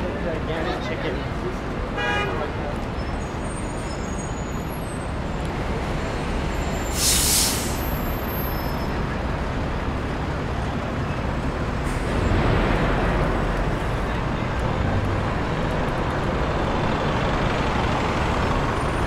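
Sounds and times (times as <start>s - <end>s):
city street traffic: 0.0s - 19.0s
loud hiss: 6.9s - 7.9s.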